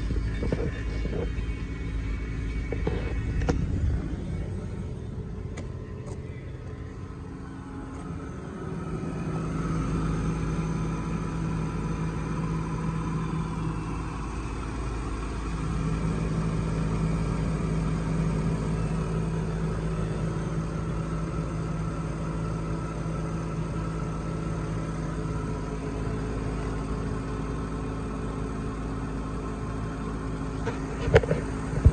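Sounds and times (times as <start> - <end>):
pickup engine idling: 0.0 - 31.9.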